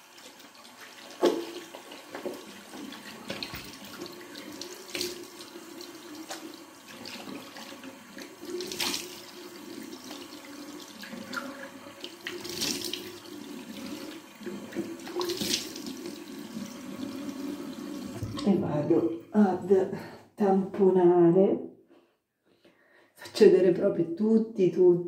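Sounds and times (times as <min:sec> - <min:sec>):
sink tap running: 0:00.0 - 0:19.0
water splashing on face: 0:08.4 - 0:09.3, 0:12.2 - 0:13.1, 0:15.0 - 0:16.0.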